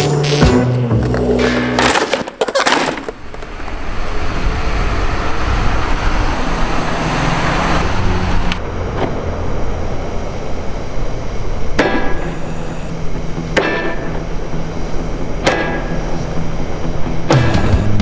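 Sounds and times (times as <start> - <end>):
outdoor rushing noise: 0.0 - 18.0
skateboard clacking on concrete: 1.4 - 3.5
low hum: 3.2 - 17.8.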